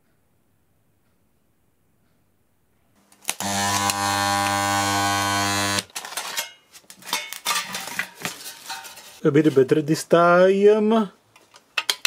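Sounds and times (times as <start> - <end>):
spot welder buzzing: 3.2 - 6.0
light metal clatter: 6.0 - 9.2.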